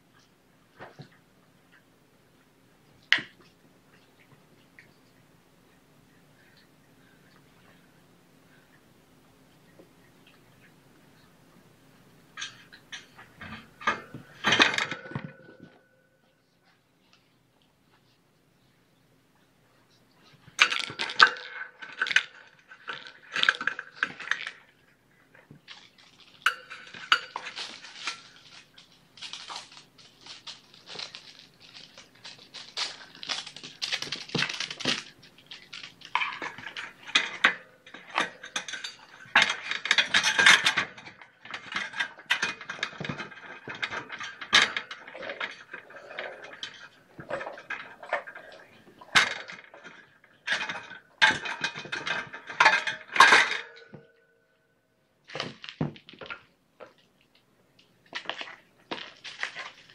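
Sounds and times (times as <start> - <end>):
kittens playing with small toys: 20.2 - 53.5.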